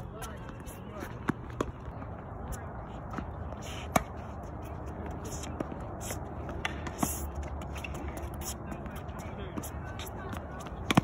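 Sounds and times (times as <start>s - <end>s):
shoes scuffing court: 0.0s - 11.0s
racket hitting tennis ball: 3.2s - 4.2s, 9.6s - 11.0s.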